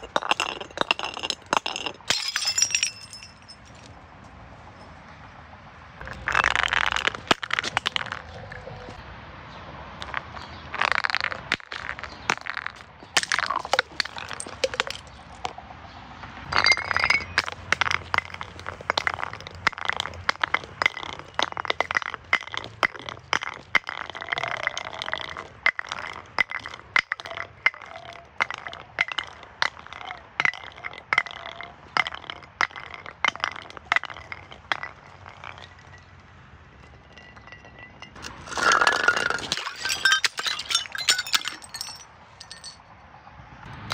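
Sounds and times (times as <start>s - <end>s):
glass bottles breaking: 0.0s - 3.8s, 10.8s - 15.5s, 16.5s - 36.2s, 36.8s - 42.8s.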